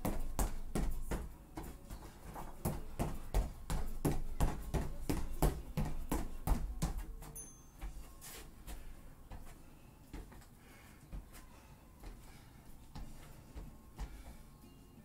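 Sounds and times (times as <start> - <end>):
feet landing on foam mats: 0.0 - 7.3.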